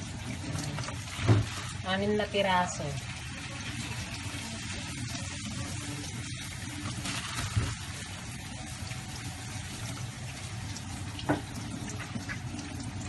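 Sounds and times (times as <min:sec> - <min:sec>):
water splashing off fish: 0:00.0 - 0:13.0
tap running into a sink: 0:00.3 - 0:01.7, 0:10.7 - 0:13.0.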